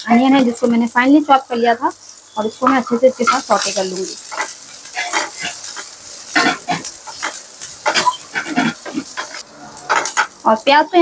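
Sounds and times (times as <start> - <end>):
onion sizzling in hot oil: 0.0 - 11.0
spatula scraping a pan: 2.4 - 10.4.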